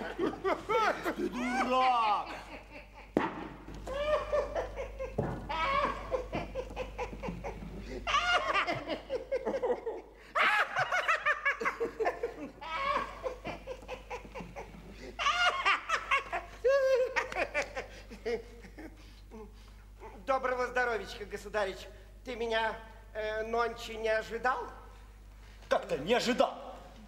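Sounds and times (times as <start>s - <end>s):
man laughing: 0.0s - 3.2s, 3.8s - 20.2s.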